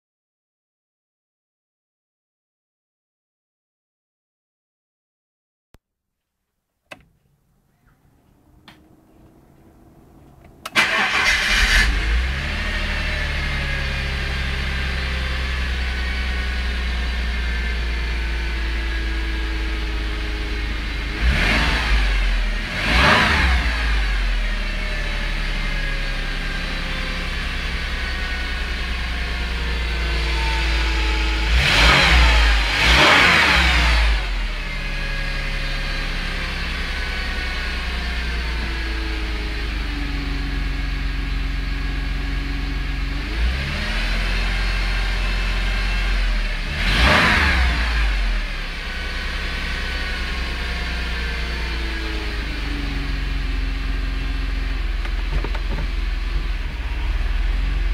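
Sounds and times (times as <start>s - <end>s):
clicks: 6.8s - 10.8s
faint rising whir: 7.2s - 12.1s
car engine idling and revving: 7.9s - 57.9s.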